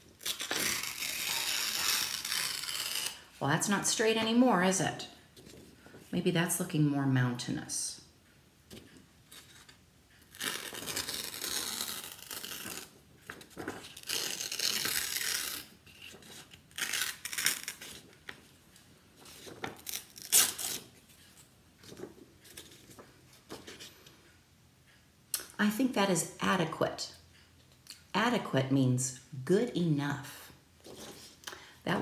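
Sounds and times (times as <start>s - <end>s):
paper tearing: 0.2s - 3.3s, 10.3s - 12.9s, 13.6s - 18.0s, 19.7s - 20.9s.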